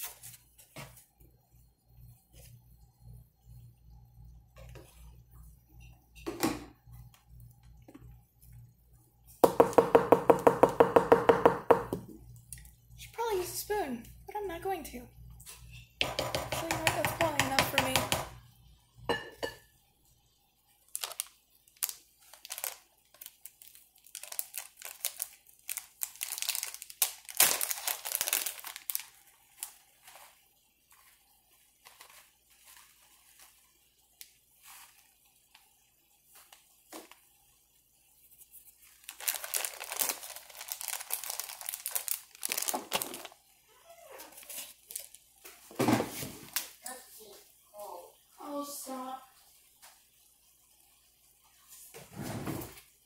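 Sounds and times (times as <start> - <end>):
plastic bag crinkling: 20.9 - 35.2, 38.8 - 43.5, 44.2 - 45.3.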